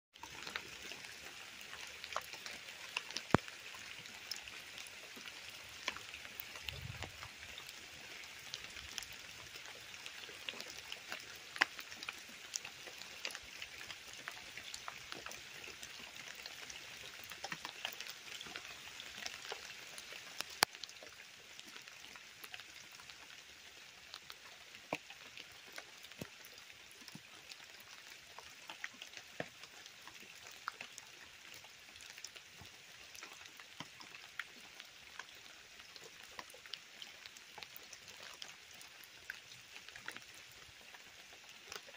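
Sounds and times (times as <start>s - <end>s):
raindrops tapping: 0.2s - 21.0s
rain falling: 0.2s - 41.9s
runoff water running over leaves: 0.2s - 41.9s.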